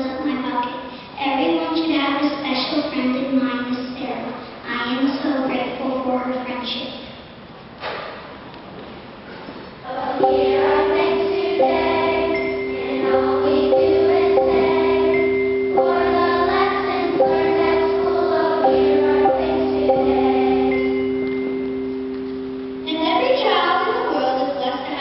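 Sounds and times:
children's choir singing: 0:09.8 - 0:24.2
steady held notes: 0:09.9 - 0:25.0.

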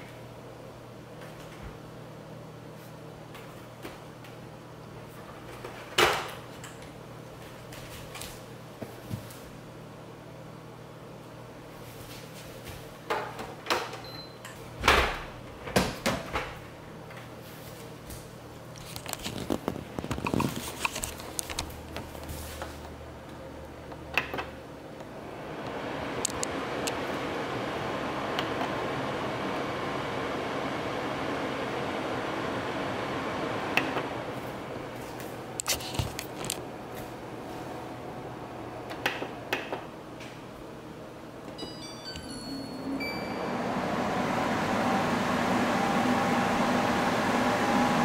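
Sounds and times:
fan airflow hiss: 0:14.6 - 0:41.6, 0:42.8 - 0:48.0.

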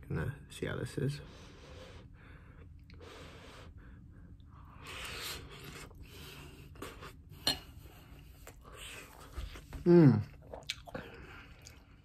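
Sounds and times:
person chewing: 0:04.7 - 0:07.3, 0:08.1 - 0:12.0.

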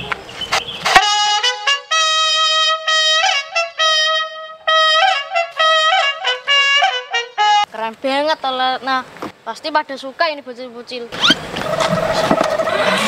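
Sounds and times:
horn blaring a tune: 0:00.8 - 0:07.8.

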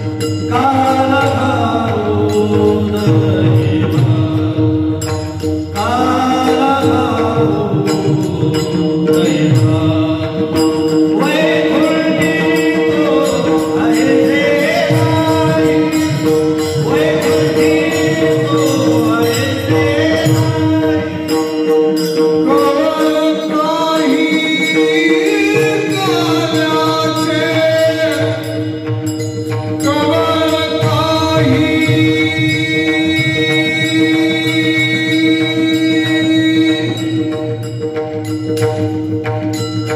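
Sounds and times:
men singing devotional song: 0:00.0 - 0:37.7
hand cymbals: 0:00.0 - 0:39.9
hand drum: 0:00.0 - 0:39.9.

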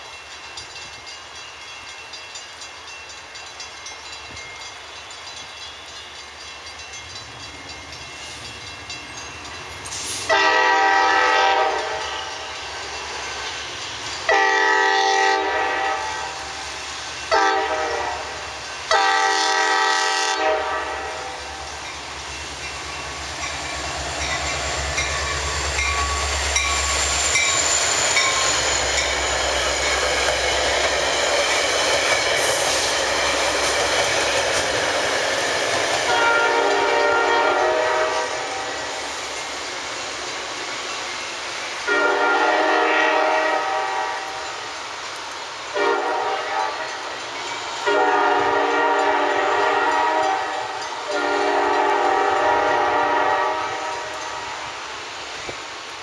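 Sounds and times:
train passing at speed: 0:00.0 - 0:56.0
train air horn: 0:09.9 - 0:12.4, 0:14.3 - 0:16.6, 0:17.3 - 0:21.6, 0:36.1 - 0:39.0, 0:41.9 - 0:44.5, 0:45.7 - 0:47.0, 0:47.8 - 0:54.6.

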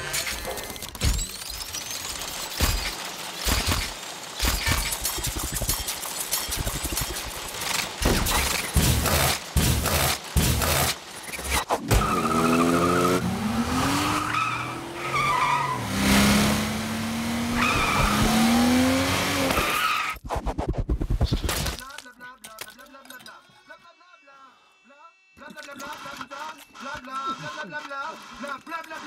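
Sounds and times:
truck engine revving: 0:11.9 - 0:19.8.

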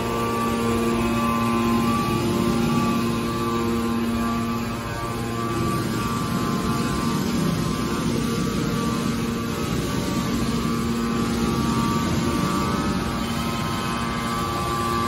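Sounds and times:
hydraulic pump humming and whining: 0:00.0 - 0:15.0.

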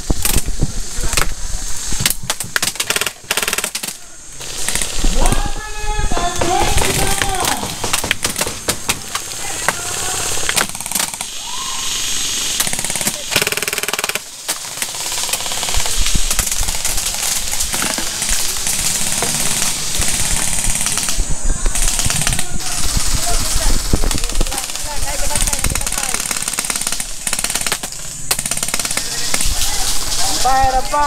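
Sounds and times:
airsoft rifles firing: 0:02.0 - 0:05.6, 0:06.2 - 0:11.7, 0:12.5 - 0:29.9
person shouting: 0:05.2 - 0:07.7, 0:09.4 - 0:10.5, 0:11.4 - 0:12.0.

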